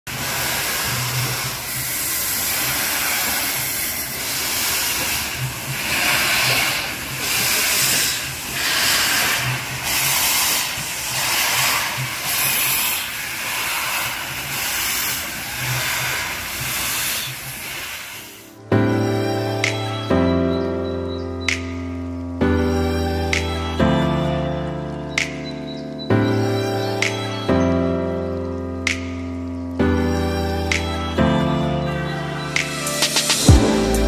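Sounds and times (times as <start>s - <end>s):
steam locomotive hissing: 0.1s - 18.6s.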